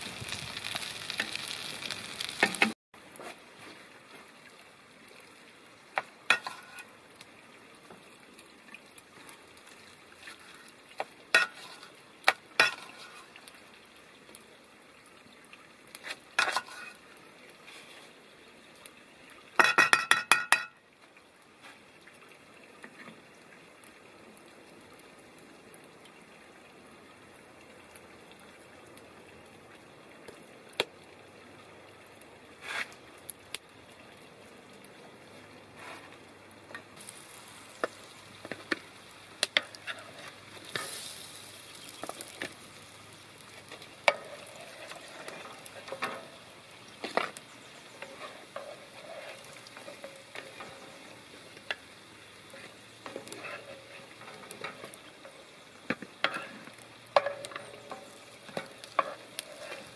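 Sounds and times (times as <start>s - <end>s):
patty sizzling in oil: 0.0s - 3.9s, 5.2s - 14.0s, 15.8s - 20.8s, 32.6s - 33.6s, 35.7s - 59.9s
spatula tapping on pan: 19.6s - 20.8s.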